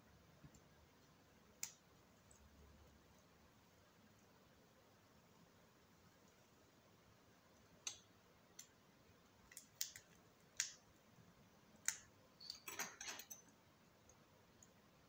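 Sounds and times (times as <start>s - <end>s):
metal tweezers clicking on parts: 9.5s - 10.8s, 11.8s - 14.8s.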